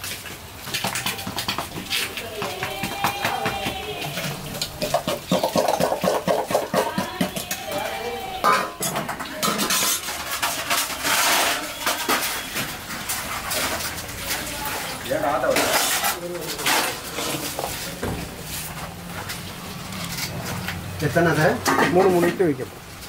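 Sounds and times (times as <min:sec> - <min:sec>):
metal dishes clattering and clinking: 0:00.6 - 0:17.9, 0:21.6 - 0:22.4.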